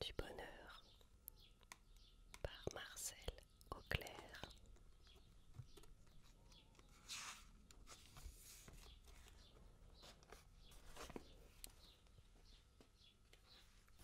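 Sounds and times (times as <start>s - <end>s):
book pages rustling: 5.4s - 12.0s.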